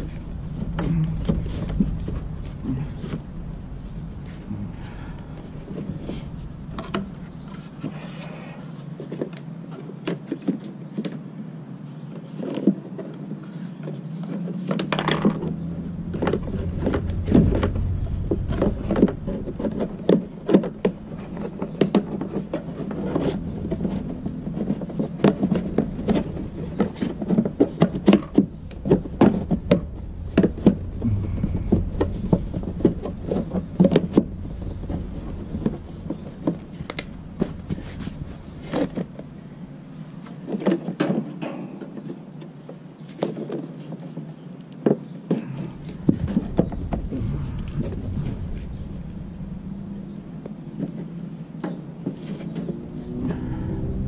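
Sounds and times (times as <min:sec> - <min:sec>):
low rumble: 0:00.0 - 0:09.0, 0:15.0 - 0:40.2, 0:45.4 - 0:54.0.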